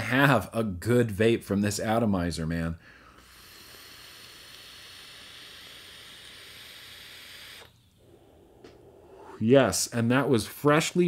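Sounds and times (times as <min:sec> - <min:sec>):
hiss of air through atomizer: 0:03.0 - 0:09.4.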